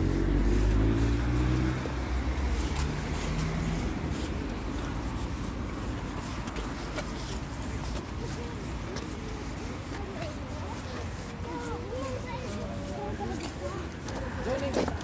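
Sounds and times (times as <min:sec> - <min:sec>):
car passing by: 0:00.0 - 0:05.9
low traffic rumble: 0:00.0 - 0:15.0.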